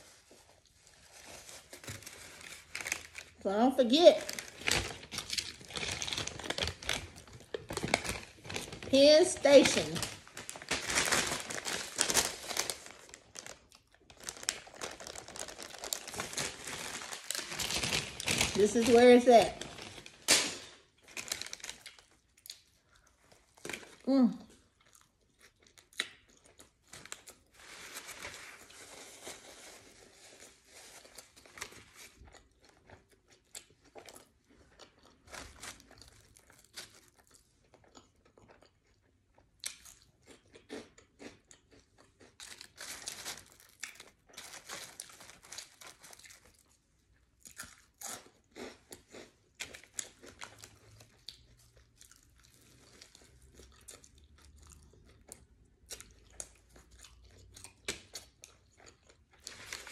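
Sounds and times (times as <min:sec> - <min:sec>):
chewing with crunching: 0:21.6 - 0:27.6, 0:31.0 - 0:59.9.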